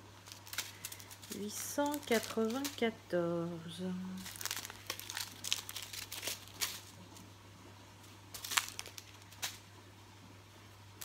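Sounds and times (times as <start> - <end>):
small plastic bags crinkling: 0.0 - 3.2, 3.9 - 7.3, 8.0 - 9.7.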